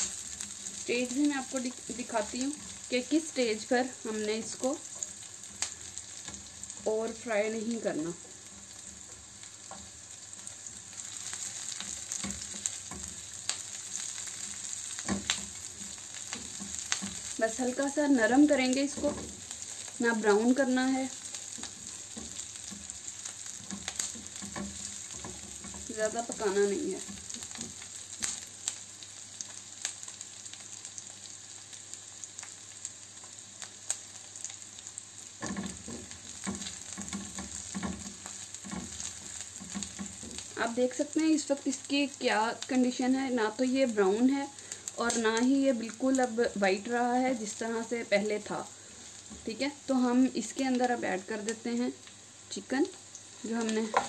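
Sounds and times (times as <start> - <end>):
onions sizzling in a frying pan: 0.0 - 54.0
spatula tapping and scraping pan: 11.0 - 17.4, 21.2 - 26.4, 35.4 - 40.6, 53.6 - 54.0
spatula scraping a pan: 21.2 - 25.9.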